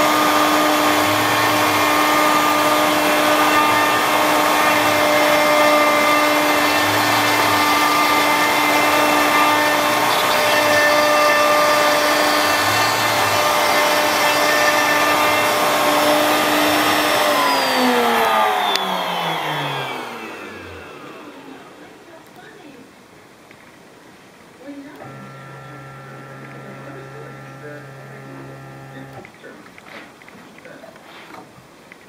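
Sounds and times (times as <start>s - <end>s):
spindle winding down: 0.0s - 22.4s, 24.8s - 29.5s
router spindle whining: 0.0s - 22.5s, 24.9s - 29.8s.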